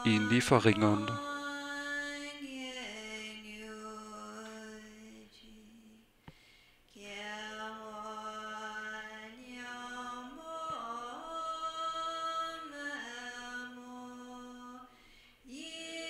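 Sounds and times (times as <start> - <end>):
person chanting a prayer: 0.0 - 1.3.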